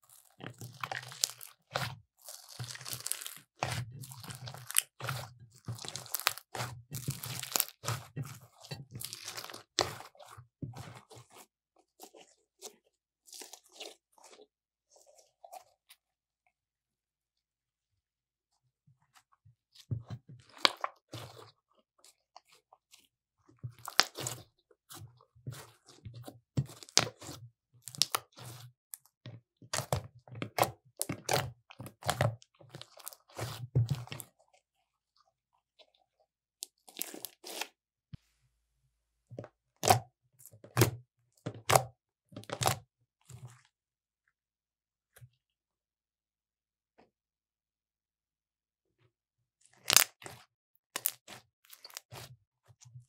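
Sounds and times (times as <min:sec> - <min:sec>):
slime squelching: 0:00.0 - 0:16.1, 0:19.1 - 0:37.8, 0:39.7 - 0:43.7, 0:49.8 - 0:52.8.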